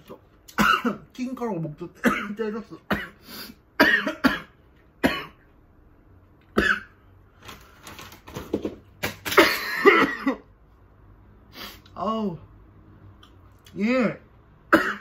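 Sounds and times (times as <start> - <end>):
man coughing: 0.5 - 1.1, 2.0 - 5.4, 6.6 - 7.0, 9.3 - 10.5, 14.7 - 15.0.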